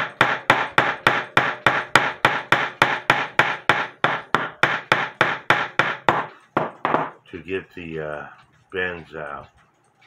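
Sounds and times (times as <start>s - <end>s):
hammer tapping metal: 0.0s - 7.2s.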